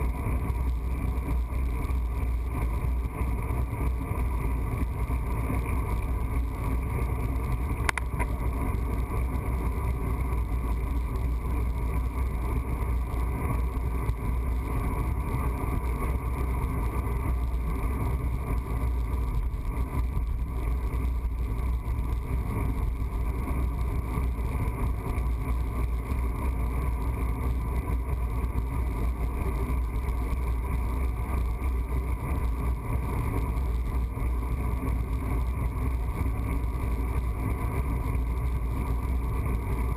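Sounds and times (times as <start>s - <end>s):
bicycle road noise and wind: 0.0s - 39.9s
faint tick: 7.4s - 8.8s.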